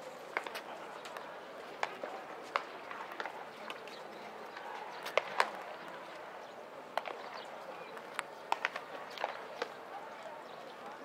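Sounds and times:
outdoor background noise: 0:00.0 - 0:11.0
baseballs smacking into mitts: 0:00.3 - 0:05.7, 0:06.9 - 0:07.4, 0:08.0 - 0:09.8.

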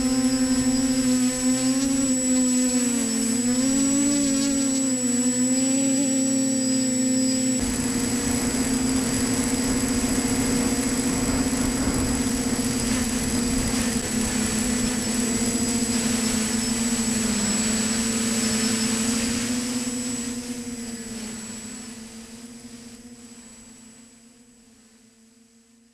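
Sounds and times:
quadcopter motors buzzing: 0:00.0 - 0:25.9
wind noise: 0:07.6 - 0:17.6.

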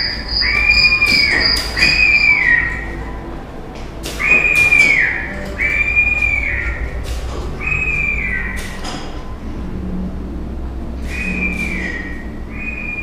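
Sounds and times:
high whistling tone sliding down: 0:11.0 - 0:13.0.

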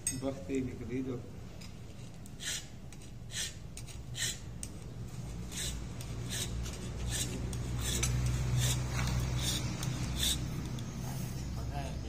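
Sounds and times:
hand tool scraping strokes: 0:02.4 - 0:04.5, 0:05.3 - 0:10.8.

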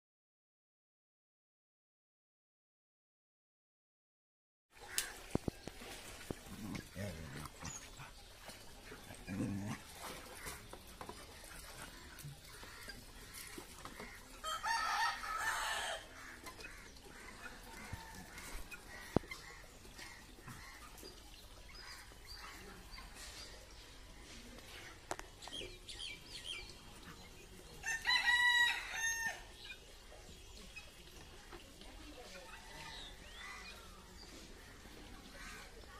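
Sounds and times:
rooster crowing: 0:14.4 - 0:16.1, 0:27.8 - 0:29.4.

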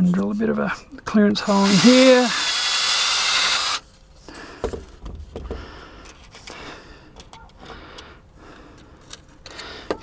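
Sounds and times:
cordless drill boring: 0:01.5 - 0:03.8.

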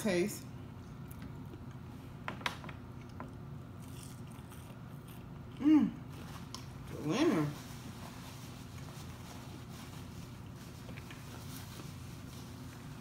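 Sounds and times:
chewing crispy food: 0:02.9 - 0:06.9
person humming: 0:05.6 - 0:06.0.

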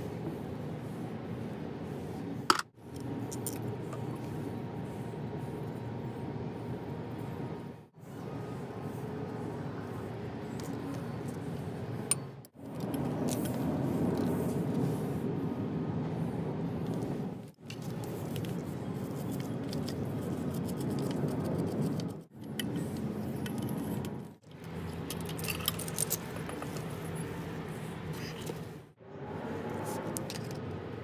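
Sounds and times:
metal clinks and scraping: 0:22.4 - 0:27.4.

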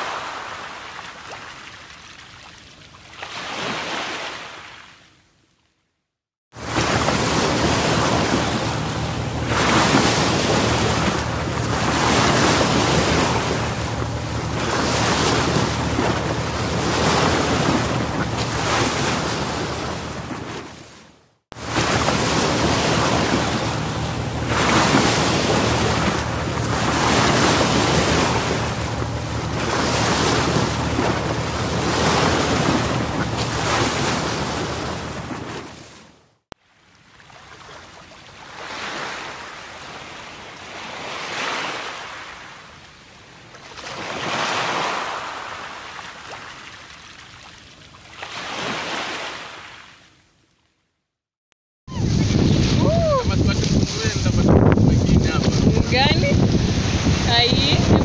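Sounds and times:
small waves breaking on sand: 0:00.0 - 0:05.1, 0:06.6 - 0:50.1, 0:52.0 - 0:58.0
wind buffeting microphone: 0:51.9 - 0:58.0.

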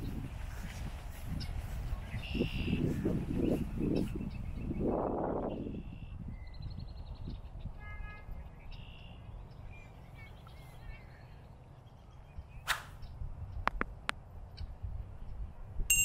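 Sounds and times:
high bird calls: 0:01.2 - 0:13.2
sharp click: 0:12.6 - 0:13.0.

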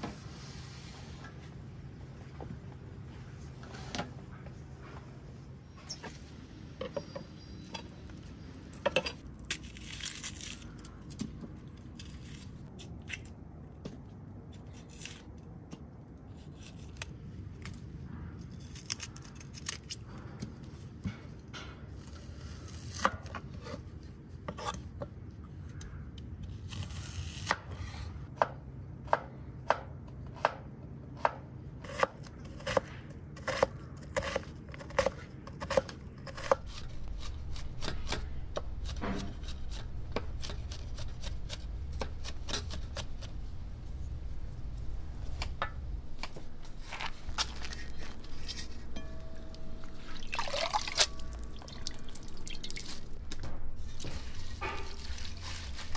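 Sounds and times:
knife chopping onion on wooden board: 0:28.4 - 0:43.2.

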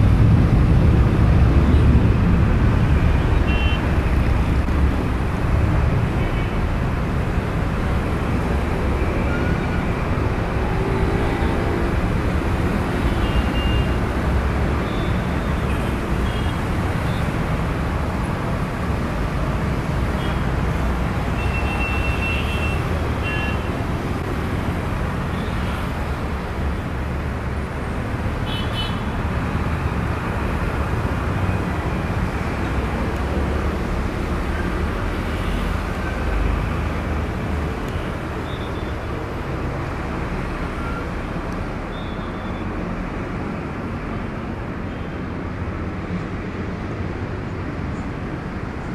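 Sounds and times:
jet engines at takeoff: 0:00.0 - 0:13.2.

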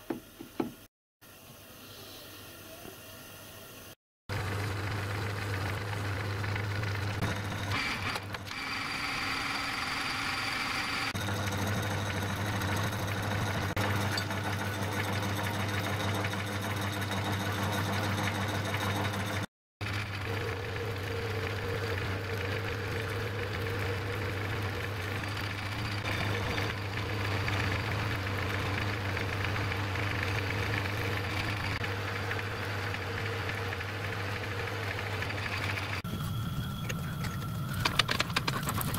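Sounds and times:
metal lathe motor and gear hum: 0:04.3 - 0:38.9.

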